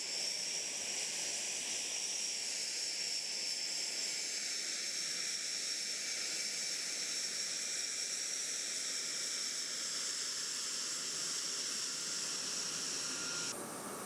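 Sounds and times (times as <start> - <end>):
jet engine whistle: 11.0 - 14.0.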